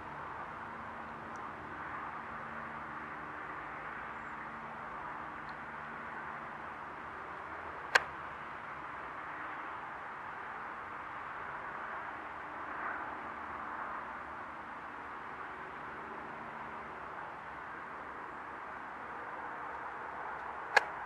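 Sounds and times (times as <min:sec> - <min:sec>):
sharp click: 0:07.9 - 0:08.1, 0:20.7 - 0:20.9.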